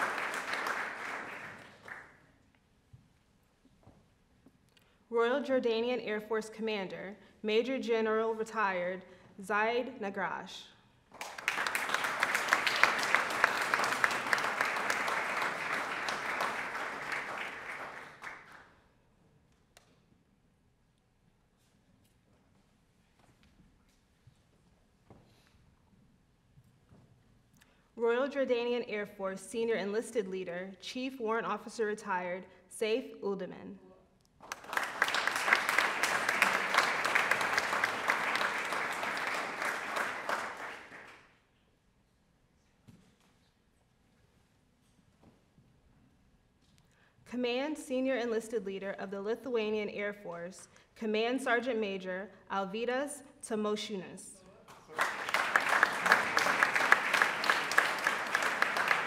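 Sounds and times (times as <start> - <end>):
audience applauding: 0.0 - 2.2, 11.2 - 18.7, 34.4 - 41.2, 54.8 - 59.0.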